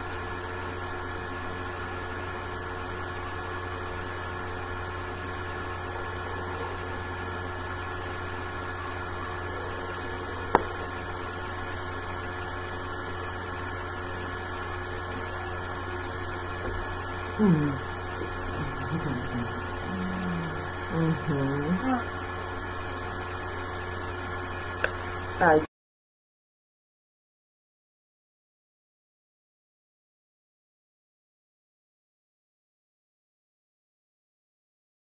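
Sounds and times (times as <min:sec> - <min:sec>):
steady electrical hum: 0:00.0 - 0:25.7.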